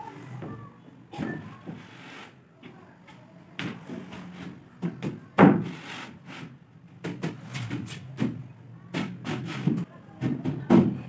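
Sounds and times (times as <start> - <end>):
wood panel scraping: 9.0 - 9.9.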